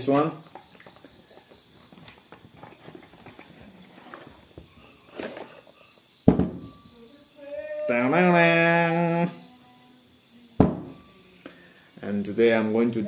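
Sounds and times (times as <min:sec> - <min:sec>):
cardboard rustling and scraping: 0:01.8 - 0:05.6
box knocking on table: 0:06.3 - 0:06.7.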